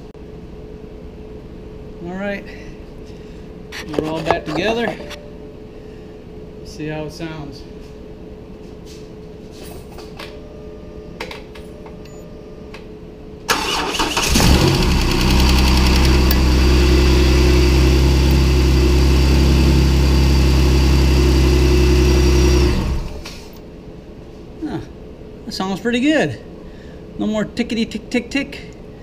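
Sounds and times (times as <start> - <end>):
car starter cranking: 13.5 - 16.6
car engine idling: 13.5 - 23.2.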